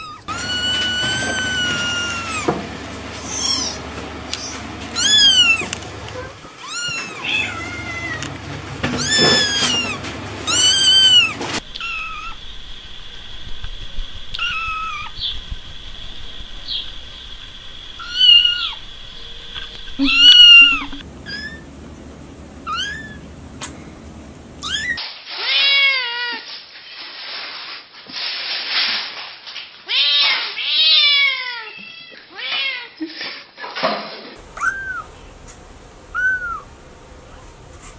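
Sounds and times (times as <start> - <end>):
kittens mewing: 0.0 - 12.4, 14.4 - 15.2, 18.0 - 18.8, 19.9 - 21.7, 22.6 - 23.8, 24.6 - 25.0, 34.4 - 37.9
cat long low meow: 5.0 - 8.4, 20.0 - 21.0.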